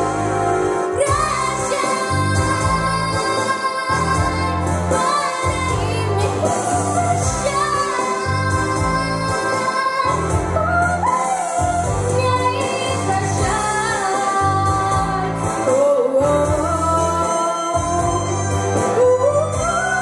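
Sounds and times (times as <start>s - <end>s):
instrumental backing track: 0.0s - 20.0s
girl singing into microphone: 1.0s - 18.4s, 19.0s - 20.0s.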